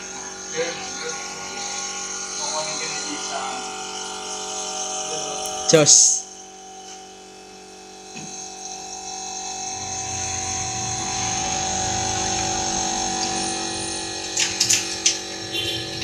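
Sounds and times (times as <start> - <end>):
motorcycle engine buzzing: 0.0 - 16.0.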